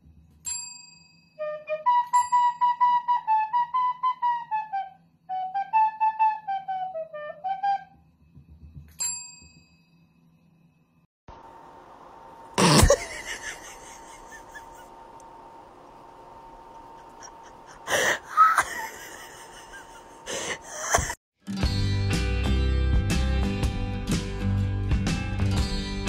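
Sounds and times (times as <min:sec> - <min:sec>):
small flute tune: 0:01.4 - 0:08.1
steady hiss with faint hum: 0:10.7 - 0:20.9.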